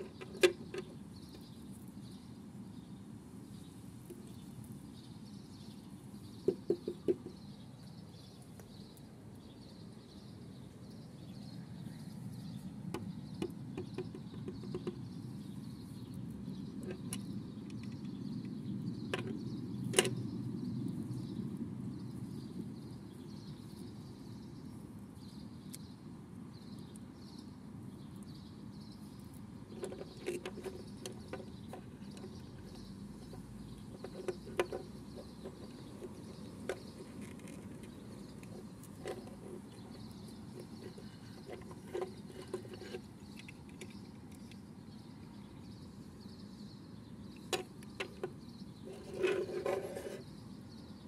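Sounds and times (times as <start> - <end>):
low steady background noise: 0.0 - 51.0
small plastic clicks and taps: 12.9 - 15.0.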